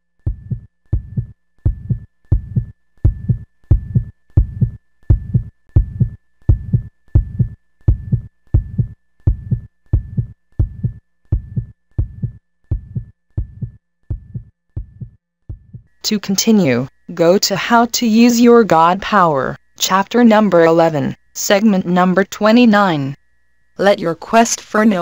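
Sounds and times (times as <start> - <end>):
heartbeat low double thumps: 0.2 - 15.9.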